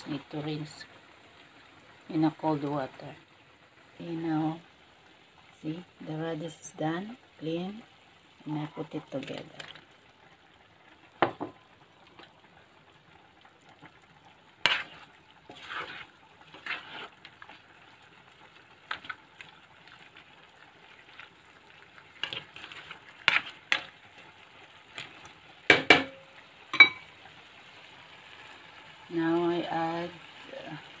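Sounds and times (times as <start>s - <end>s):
vegetables sizzling in a pan: 0.0s - 31.0s
utensil scraping a pan: 14.6s - 17.6s, 22.2s - 24.0s.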